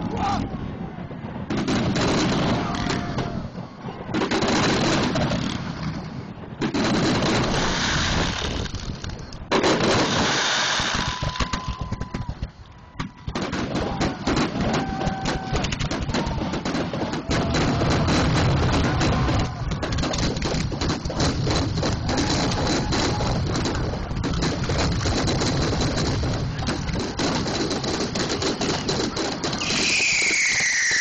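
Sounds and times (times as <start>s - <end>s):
firework crackling bangs: 1.0s - 31.0s
firework hissing bursts: 7.1s - 11.7s, 28.0s - 31.0s.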